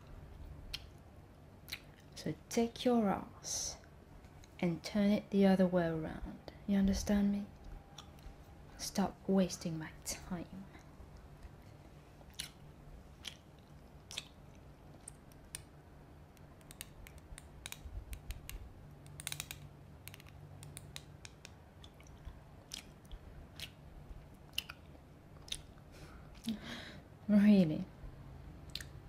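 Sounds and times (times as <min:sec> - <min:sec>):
gum chewing mouth smacks: 0:01.6 - 0:02.1, 0:07.9 - 0:08.2, 0:12.2 - 0:15.7, 0:20.9 - 0:26.5, 0:28.7 - 0:29.0.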